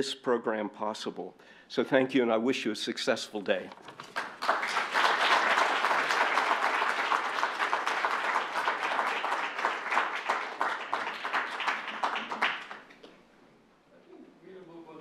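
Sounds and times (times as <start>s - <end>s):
audience applauding: 3.9s - 13.1s.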